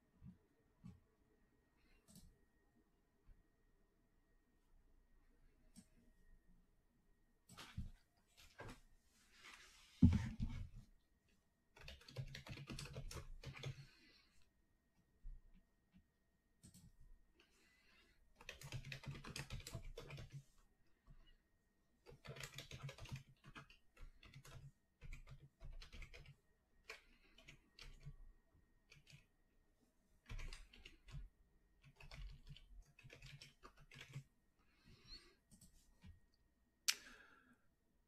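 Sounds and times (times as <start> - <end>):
typing on computer keyboard: 11.8 - 13.9, 18.4 - 20.4, 22.0 - 28.1, 28.9 - 29.3, 30.2 - 34.3.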